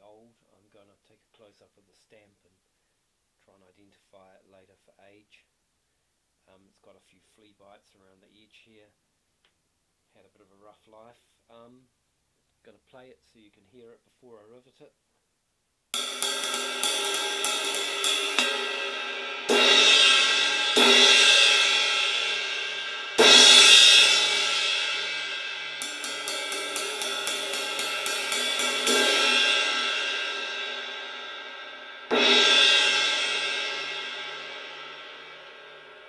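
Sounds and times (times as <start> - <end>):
cymbal crash hits: 16.0 - 36.0
cymbal ride strokes: 16.0 - 36.0.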